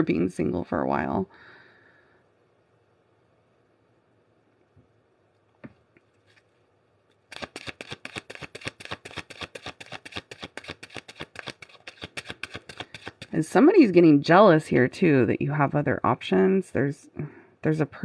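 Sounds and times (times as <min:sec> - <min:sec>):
cards being shuffled: 0:07.3 - 0:13.4.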